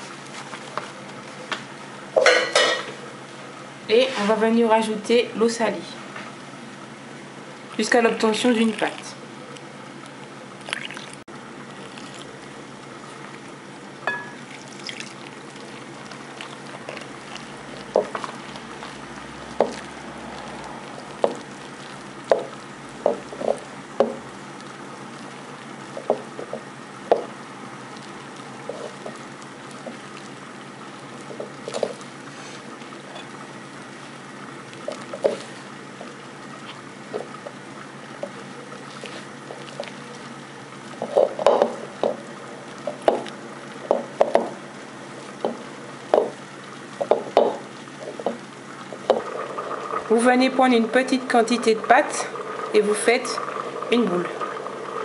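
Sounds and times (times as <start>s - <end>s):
hand squishing wet dough: 14.3s - 44.4s.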